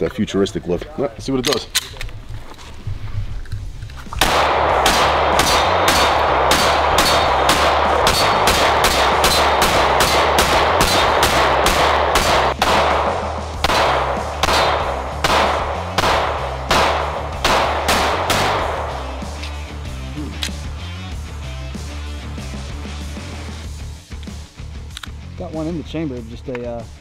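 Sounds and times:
pistol shots: 4.2 - 19.3.

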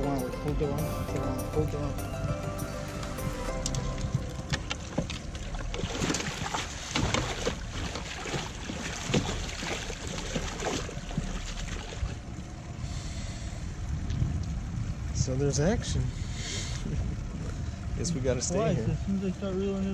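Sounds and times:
fish thrashing and splashing in net: 3.8 - 12.2.

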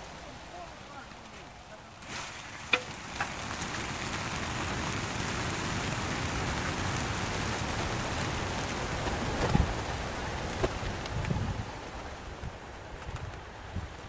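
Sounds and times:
pigeon wings flapping: 0.0 - 14.0.

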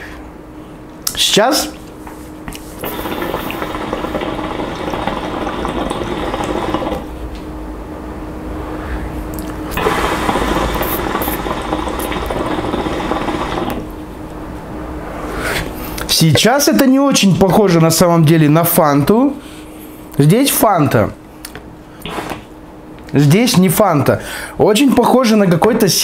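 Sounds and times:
hookah water bubbling: 2.8 - 7.2, 9.6 - 14.0.

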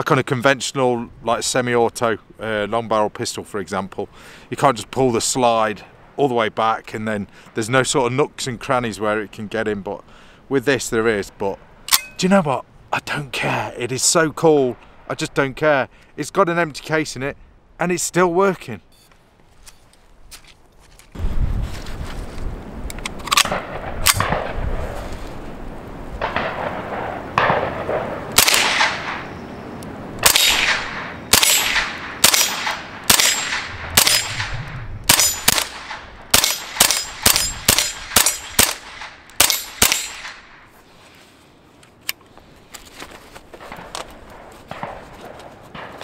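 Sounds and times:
suppressed rifle shots: 23.3 - 24.6, 26.2 - 29.4, 30.2 - 40.7.

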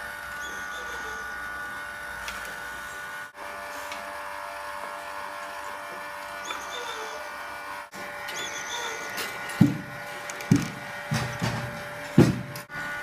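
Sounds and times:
chain drive and wooden wheels whirring: 4.8 - 13.0.

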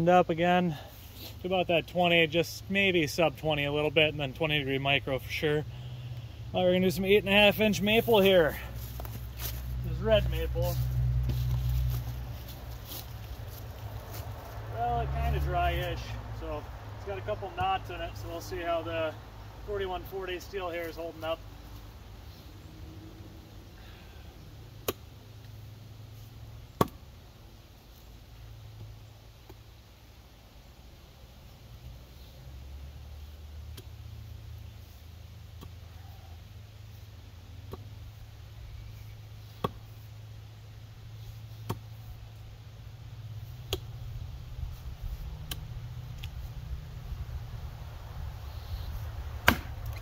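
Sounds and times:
axe chopping log: 24.8 - 25.1, 26.7 - 27.1, 39.5 - 39.9, 41.6 - 42.0, 43.6 - 44.0, 49.4 - 50.0.

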